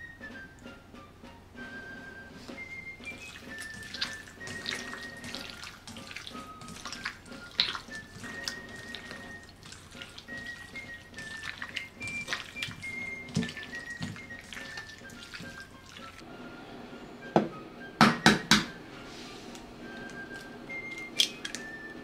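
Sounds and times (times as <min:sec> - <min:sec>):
background music with whistle melody: 0:00.0 - 0:22.0
hands squishing raw meat: 0:02.5 - 0:16.2, 0:20.0 - 0:21.8.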